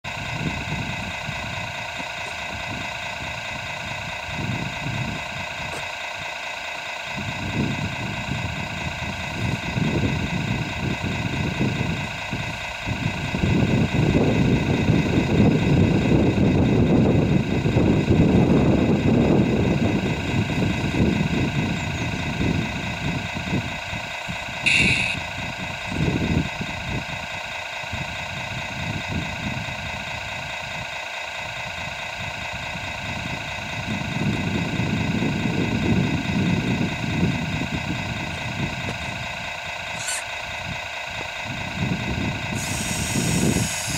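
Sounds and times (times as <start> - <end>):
model truck engine hum: 0.1 - 43.9
short high chirp: 24.7 - 25.2.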